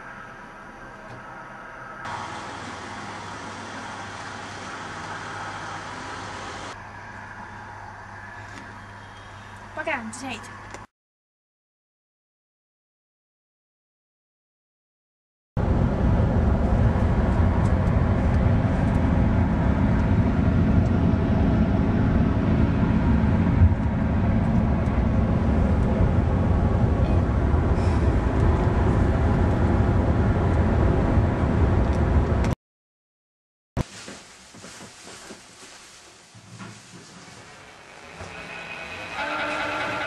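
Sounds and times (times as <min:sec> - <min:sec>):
car cabin road and engine rumble: 0:15.6 - 0:32.6.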